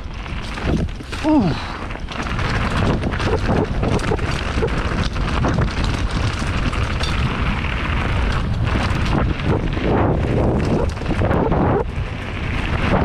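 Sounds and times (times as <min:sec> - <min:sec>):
bike knocks and rattles: 0:00.0 - 0:13.0
wind rushing on microphone: 0:00.0 - 0:13.0.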